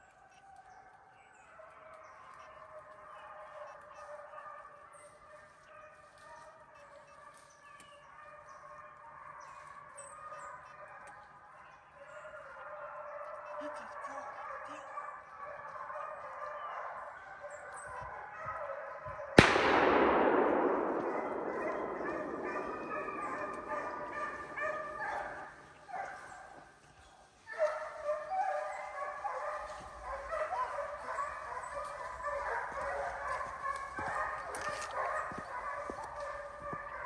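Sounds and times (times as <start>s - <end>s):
hounds baying and barking: 0.0s - 37.0s
echoing gunshot: 19.4s - 26.0s.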